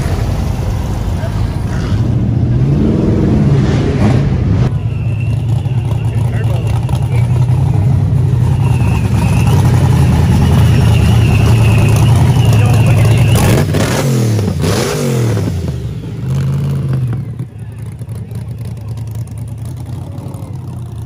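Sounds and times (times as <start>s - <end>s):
car engines running: 0.0s - 21.0s
engine revving: 1.6s - 17.2s.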